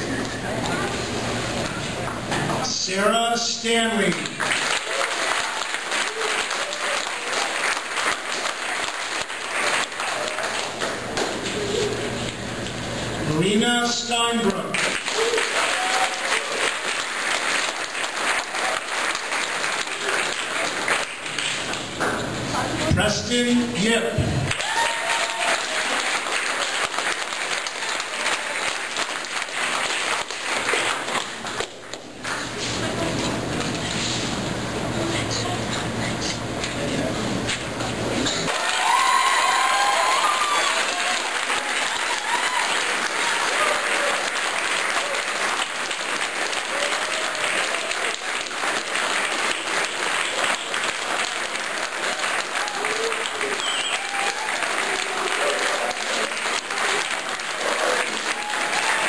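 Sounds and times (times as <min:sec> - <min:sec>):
audience applauding: 0:03.8 - 0:12.8, 0:14.4 - 0:22.3, 0:24.0 - 0:33.7, 0:38.4 - 0:59.0.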